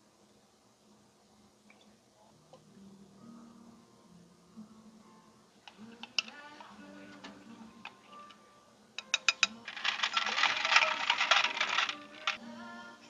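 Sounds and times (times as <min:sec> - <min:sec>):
ice cubes clinking into glass: 0:09.4 - 0:12.4.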